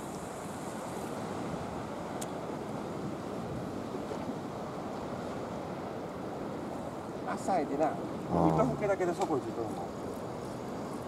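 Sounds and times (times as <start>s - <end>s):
sea washing against breakwater: 0.0s - 11.0s
faint click: 2.2s - 2.4s.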